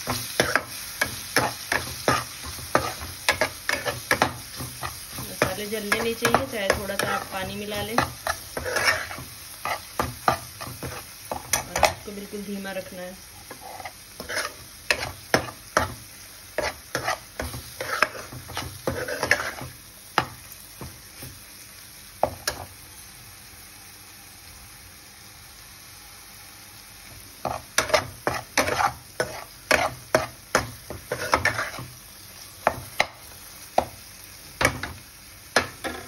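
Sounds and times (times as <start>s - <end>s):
spoon scraping and stirring in pan: 0.0s - 12.2s, 13.3s - 21.4s, 22.2s - 22.7s, 27.4s - 32.0s, 35.6s - 36.0s
low sizzle of frying: 0.0s - 36.0s.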